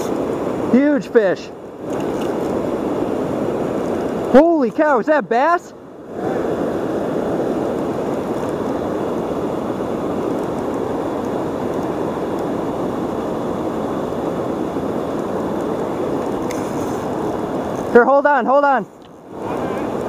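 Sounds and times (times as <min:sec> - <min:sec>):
river water rushing over rocks: 0:00.0 - 0:20.0.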